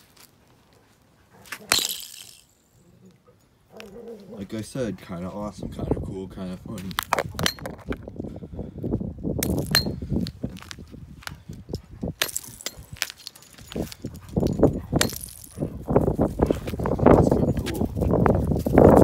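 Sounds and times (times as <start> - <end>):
hammer smashing ice on concrete: 1.7 - 2.5, 12.2 - 13.3, 15.0 - 15.5.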